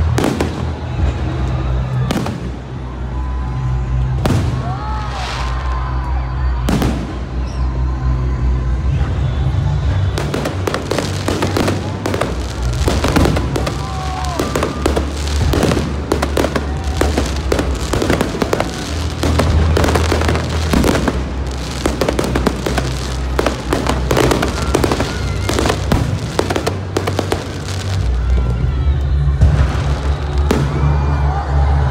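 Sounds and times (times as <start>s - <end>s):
fireworks bangs and crackling: 0.0s - 8.1s, 9.1s - 31.9s.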